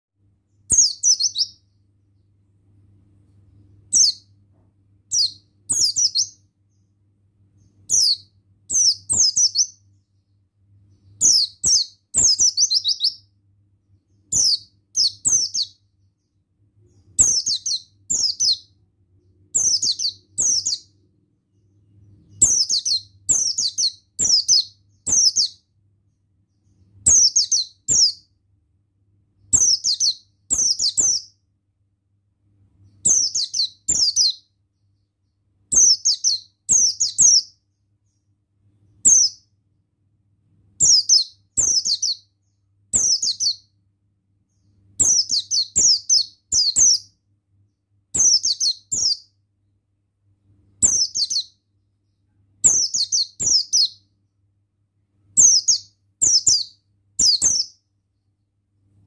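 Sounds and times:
bird twittering: 0.7s - 1.8s, 3.9s - 4.3s, 5.1s - 6.4s, 7.6s - 9.8s, 11.0s - 13.3s, 14.3s - 15.8s, 16.9s - 18.7s, 19.5s - 21.0s, 22.2s - 25.6s, 27.0s - 28.3s, 29.5s - 31.3s, 32.8s - 34.4s, 39.0s - 39.4s, 40.8s - 42.3s, 42.9s - 43.6s, 48.2s - 49.3s, 50.8s - 51.6s, 52.6s - 54.0s, 55.4s - 57.8s.

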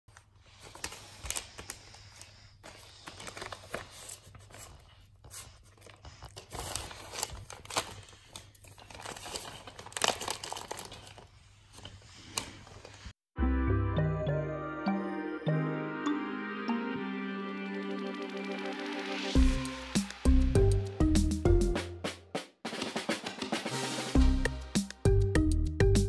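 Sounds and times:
wrapping paper crinkling and tearing: 0.1s - 13.1s.

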